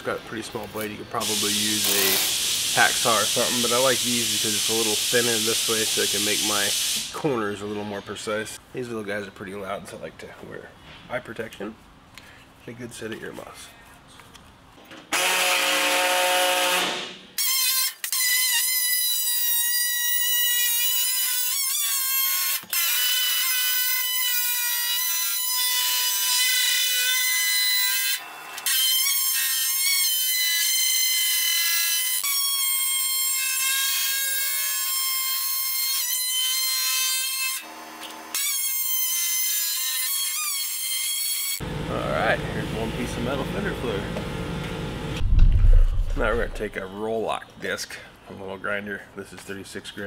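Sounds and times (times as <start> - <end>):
air saw whining: 1.2 - 7.1.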